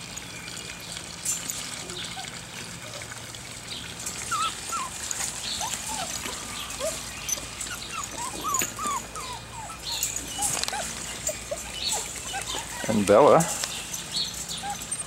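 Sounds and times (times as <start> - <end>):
puppies whimpering: 1.8 - 3.2, 4.0 - 15.0.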